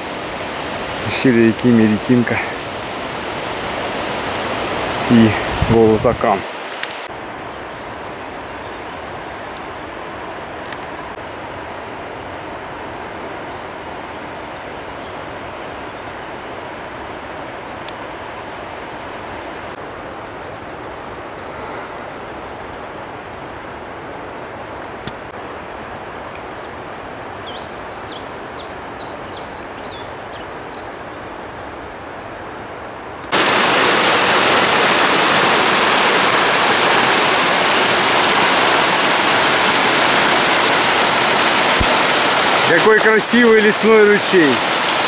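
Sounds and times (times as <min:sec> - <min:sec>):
stream cascading over rocks: 0:00.0 - 0:14.4, 0:31.2 - 0:45.0
distant river rushing: 0:00.0 - 0:45.0
small birds chirping: 0:10.1 - 0:11.9, 0:22.1 - 0:31.3.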